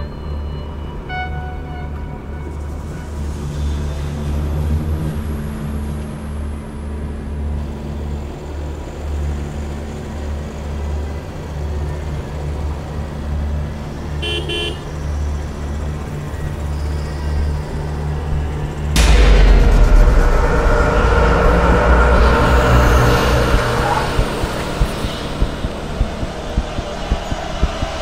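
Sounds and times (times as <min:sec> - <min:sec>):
car horn toot: 0:14.2 - 0:14.8.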